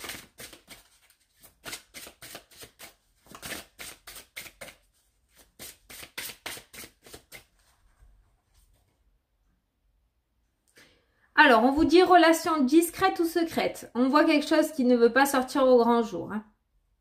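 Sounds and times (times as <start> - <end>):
cards being shuffled: 0.0 - 7.9.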